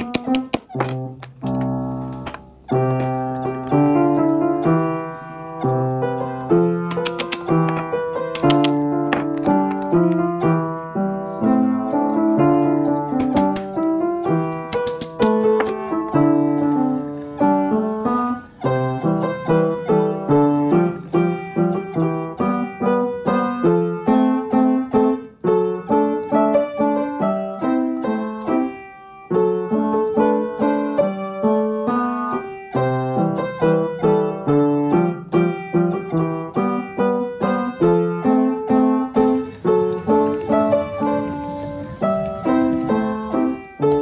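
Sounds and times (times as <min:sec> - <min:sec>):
mallet tapping wooden pin: 0:00.0 - 0:01.7, 0:06.8 - 0:09.8, 0:13.1 - 0:13.8, 0:14.6 - 0:15.9
solo piano music: 0:00.0 - 0:44.0.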